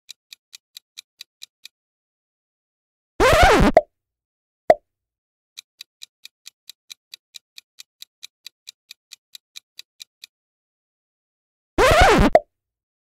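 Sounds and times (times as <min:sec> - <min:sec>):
clock ticking: 0:00.0 - 0:01.8, 0:05.6 - 0:10.4.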